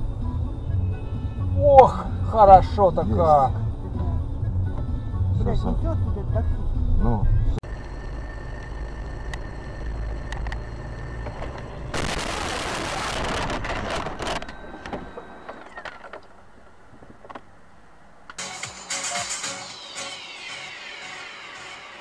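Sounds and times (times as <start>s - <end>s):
car engine and road rumble: 0.0s - 19.9s
car crash crunching and scraping: 11.3s - 16.3s.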